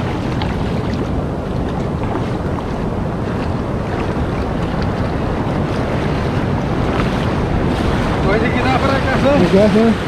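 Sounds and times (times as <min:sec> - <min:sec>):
ocean surf washing: 0:00.0 - 0:10.0
wind noise on microphone: 0:00.0 - 0:10.0.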